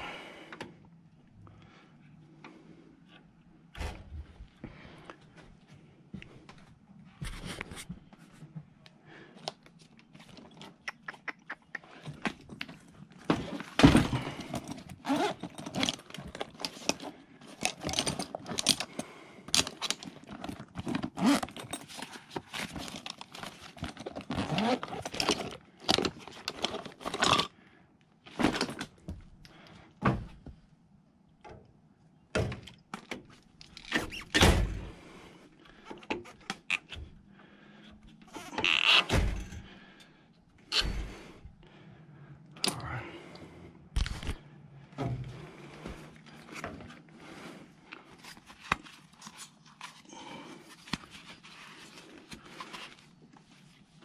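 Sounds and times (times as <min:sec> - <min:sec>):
tools being handled: 0:13.5 - 0:27.5.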